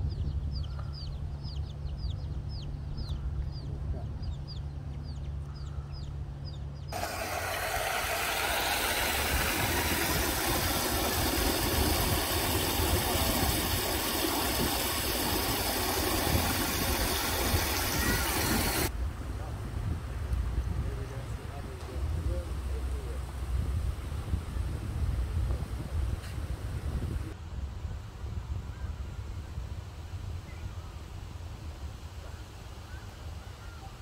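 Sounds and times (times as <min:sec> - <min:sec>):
small birds chirping: 0:00.0 - 0:18.9
steady low hum: 0:00.0 - 0:20.1
water pouring from channel: 0:07.0 - 0:18.9.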